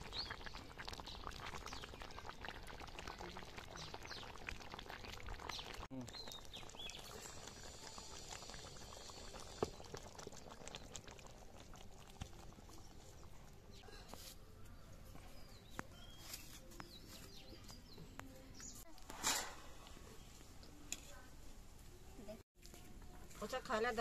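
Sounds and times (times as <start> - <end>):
curry bubbling and crackling: 0.0 - 14.1
birds chirping: 5.4 - 7.5.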